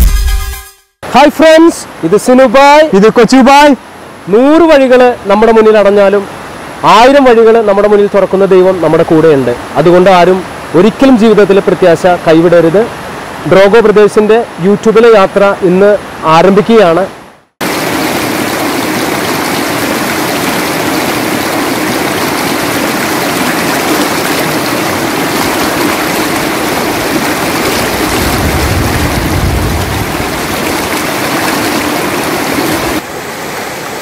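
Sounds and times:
river rushing over rocks: 17.6s - 34.0s.

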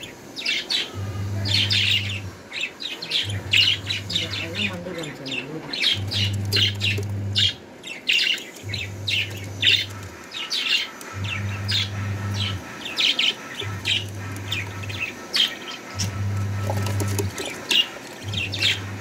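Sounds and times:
budgerigar chicks chirping: 0.0s - 19.0s
low hum: 3.1s - 7.7s, 8.6s - 10.3s, 11.0s - 19.0s.

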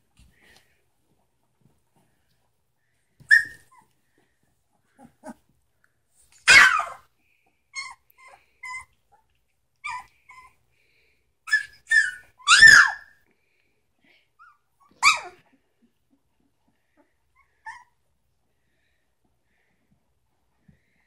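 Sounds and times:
puppies yipping: 3.2s - 3.9s, 6.5s - 7.0s, 11.5s - 13.1s, 14.8s - 15.4s.

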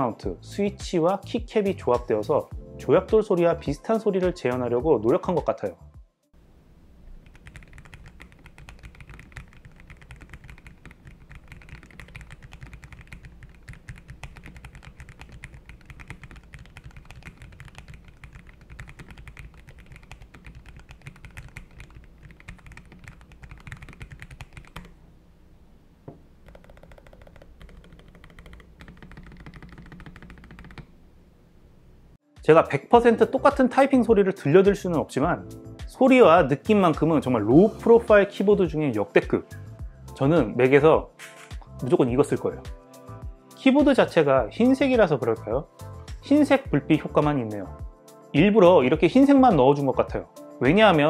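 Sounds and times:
typing on a keyboard: 7.2s - 24.9s, 26.4s - 30.9s.

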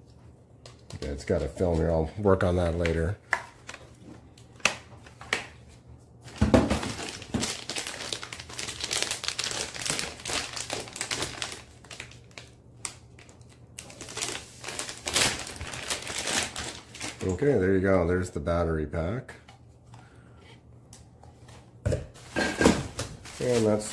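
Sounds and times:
plastic bags crinkling: 6.3s - 17.6s, 22.2s - 23.9s.

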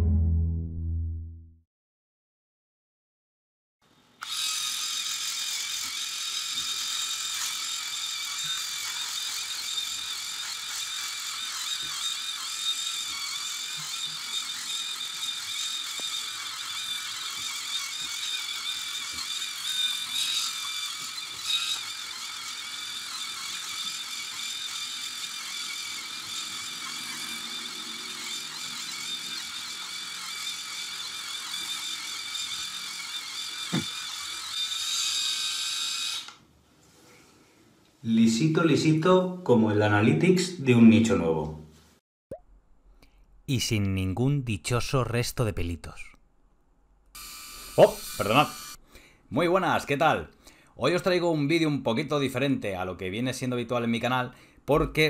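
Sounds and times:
electric shaver whirring: 4.2s - 36.4s, 47.2s - 48.8s.

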